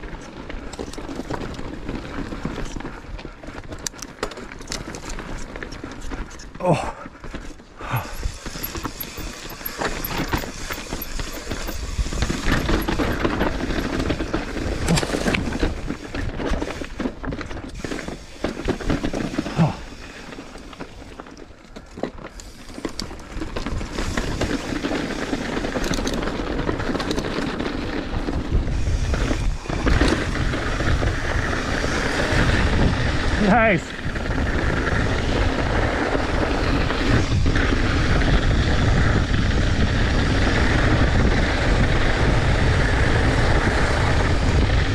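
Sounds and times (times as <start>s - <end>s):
tyres crunching over loose rock: 0.0s - 39.1s
bike frame rattling: 0.0s - 44.9s
wheels knocking on rocks: 0.0s - 44.9s
wind rumble on microphone: 22.8s - 44.9s.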